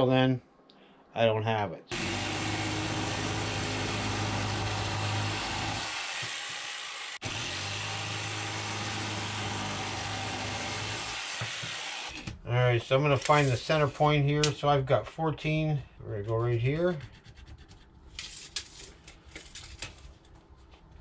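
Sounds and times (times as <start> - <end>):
jigsaw cutting plywood: 1.9 - 12.2.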